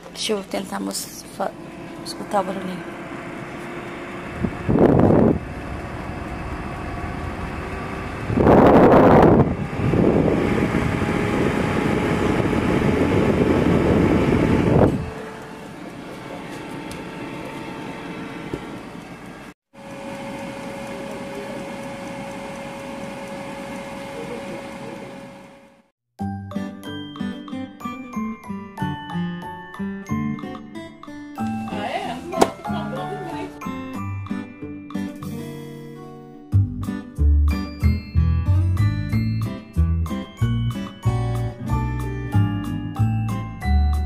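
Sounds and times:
air fryer fan running: 0:00.0 - 0:25.9, 0:31.5 - 0:34.2.

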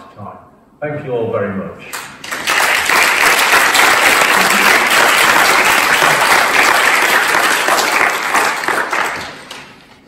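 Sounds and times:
audience applauding: 0:02.0 - 0:09.9.

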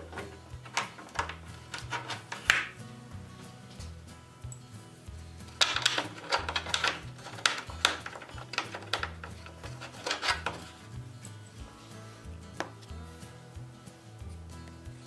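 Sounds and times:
background music with bass: 0:00.0 - 0:15.0
metal clicks and taps: 0:00.1 - 0:02.7, 0:05.6 - 0:10.7.

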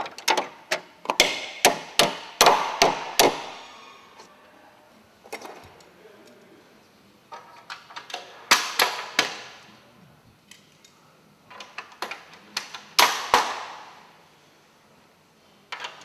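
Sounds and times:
loud echoing knocks: 0:01.1 - 0:03.7.

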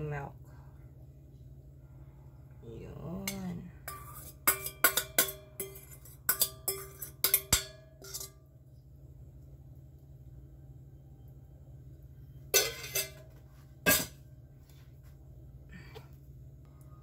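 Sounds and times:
metal spoon scraping steel bowl: 0:03.2 - 0:08.4, 0:12.6 - 0:13.3.

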